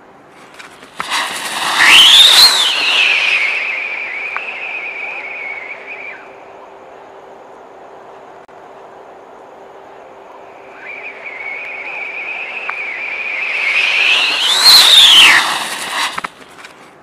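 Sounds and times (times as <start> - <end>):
rocket thrust rushing: 0.8 - 4.6, 13.1 - 16.5
shrill rocket whistle: 1.0 - 6.4, 10.7 - 16.4.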